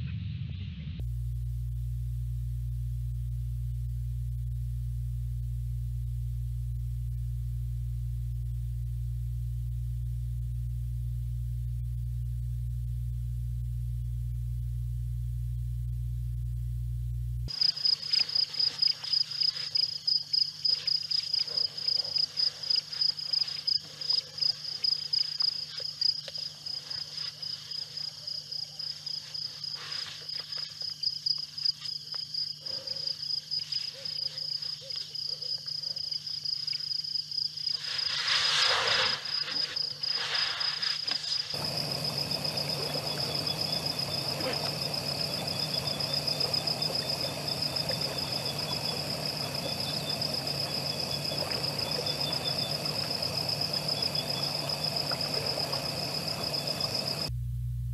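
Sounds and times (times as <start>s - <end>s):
crickets chirping: 17.5s - 57.3s
steady hiss: 37.6s - 57.3s.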